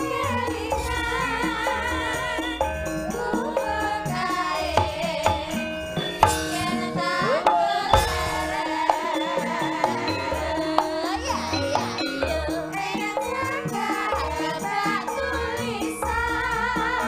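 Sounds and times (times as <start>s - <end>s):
gamelan music: 0.0s - 17.0s
women singing together: 0.0s - 17.0s
hand drum strokes: 3.1s - 9.2s.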